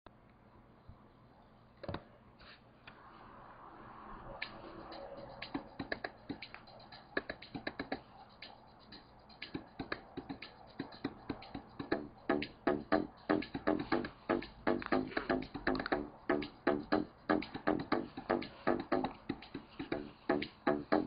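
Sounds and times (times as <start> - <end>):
sharp percussive clicks: 4.4 - 21.0.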